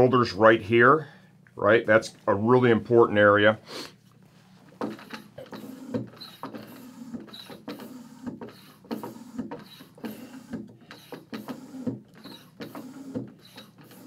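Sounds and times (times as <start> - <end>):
hand tire pump strokes: 4.7 - 14.0.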